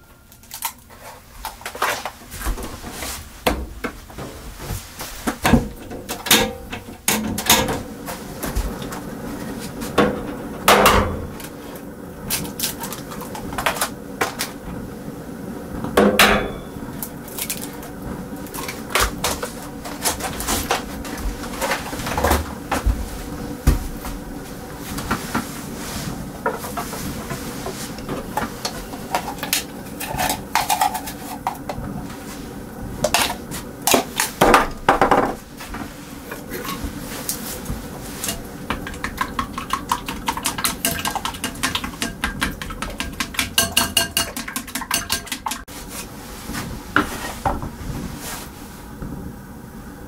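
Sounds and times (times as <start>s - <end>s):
dishes and pans clattering: 5.4s - 7.9s, 16.0s - 16.8s, 28.0s - 31.8s, 38.2s - 45.7s.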